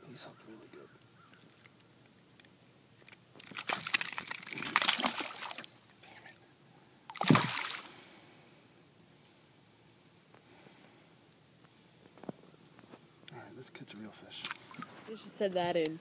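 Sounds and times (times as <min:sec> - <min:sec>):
fish splashing in water: 0:03.4 - 0:06.0, 0:07.1 - 0:08.0.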